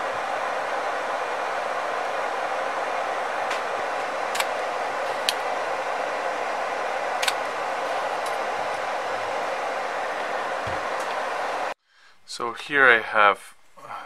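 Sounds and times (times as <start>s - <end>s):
desoldering tool whirring: 0.0s - 11.8s
small sharp clicks: 4.3s - 4.6s, 7.2s - 8.5s.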